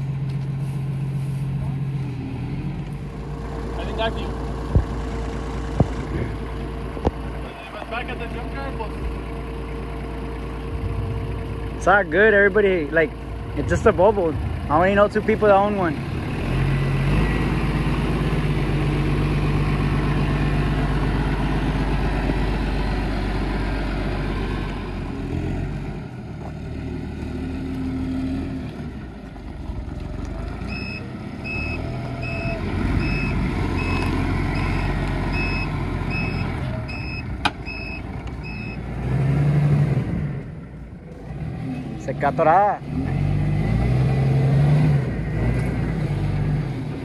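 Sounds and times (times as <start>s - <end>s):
vehicle engine running: 0.0s - 47.0s
reversing alarm beeping: 30.7s - 38.9s.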